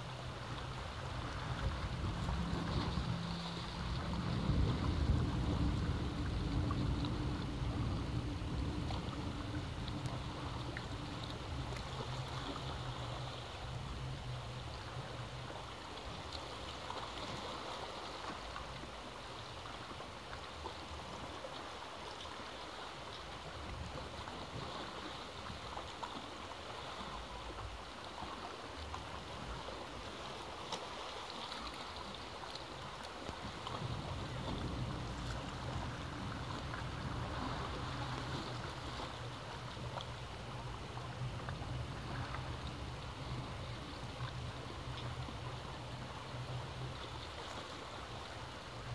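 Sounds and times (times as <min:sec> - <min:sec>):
low steady hum: 0:00.0 - 0:20.0, 0:33.1 - 0:48.9
waves washing against rocks: 0:00.0 - 0:48.9.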